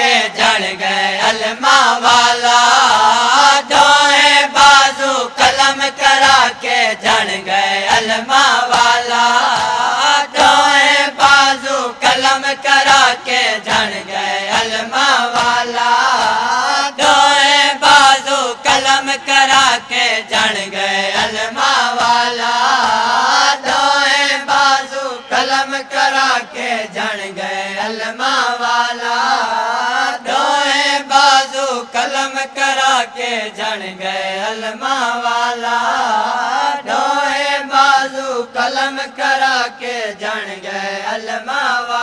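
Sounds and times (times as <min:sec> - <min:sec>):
group of men chanting: 0:00.0 - 0:42.0
hands slapping chests: 0:13.7 - 0:16.5.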